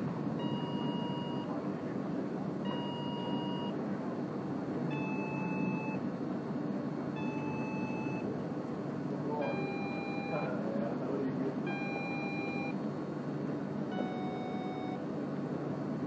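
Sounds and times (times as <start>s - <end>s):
buzzer beeping: 0.4s - 1.5s, 2.7s - 3.8s, 4.9s - 6.0s, 7.2s - 8.2s, 9.4s - 10.6s, 11.7s - 12.8s, 13.9s - 15.0s.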